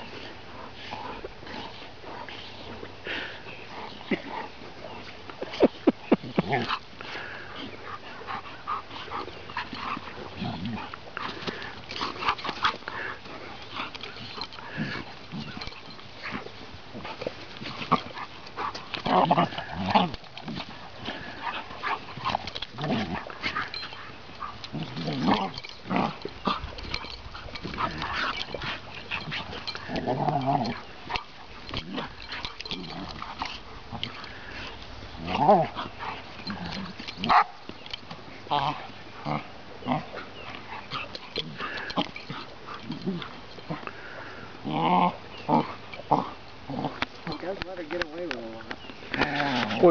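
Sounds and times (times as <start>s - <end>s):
puppy play-growling: 0.0s - 49.9s.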